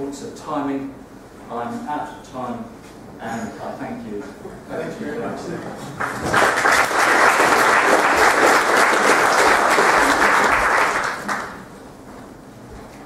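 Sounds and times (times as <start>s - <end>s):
audience applauding: 6.0s - 11.7s.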